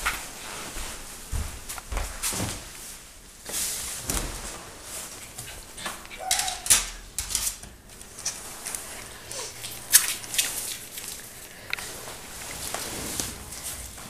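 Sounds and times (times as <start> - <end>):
puppy claws clicking on wooden floor: 5.3 - 12.2
puppy squeak: 6.1 - 6.8.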